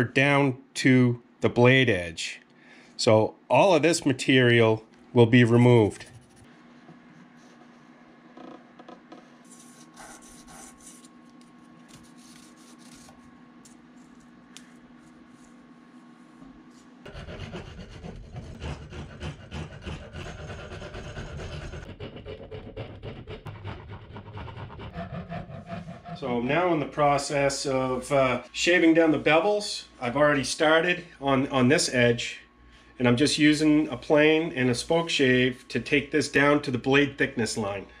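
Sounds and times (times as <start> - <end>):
pencil scratching on wood: 9.5 - 11.1, 17.1 - 26.2
hand tool rasping wood: 17.1 - 26.3.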